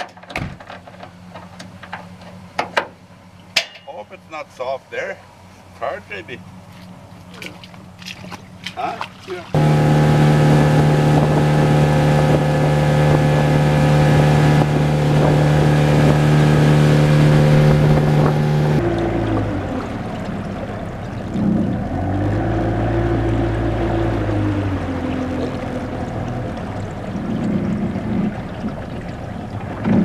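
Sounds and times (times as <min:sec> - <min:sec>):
outboard motor running: 0:05.0 - 0:30.0
wind on microphone: 0:09.6 - 0:19.6.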